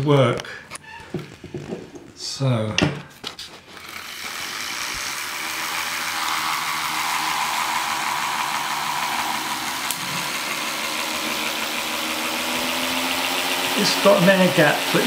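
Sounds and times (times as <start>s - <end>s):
motor whirring hiss: 3.6s - 15.0s.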